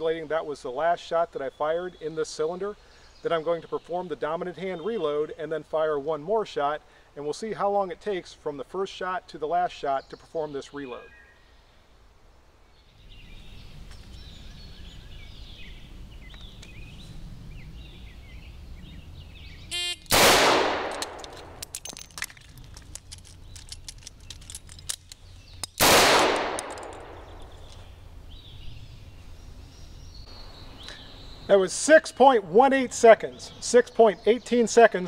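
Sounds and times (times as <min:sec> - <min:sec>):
birds chirping: 0:00.0 - 0:35.0
metallic clicks and clatter: 0:20.9 - 0:25.8, 0:26.4 - 0:27.8.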